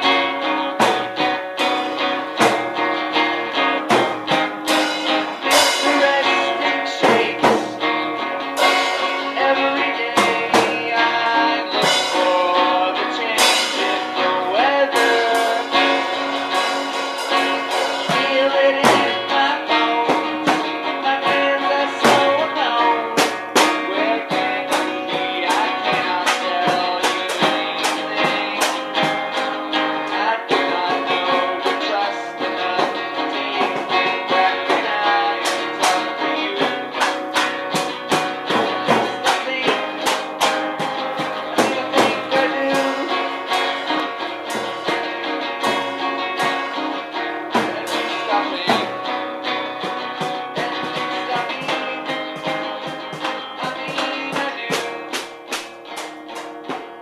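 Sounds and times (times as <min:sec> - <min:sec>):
guitar-led music: 0:00.0 - 0:57.0.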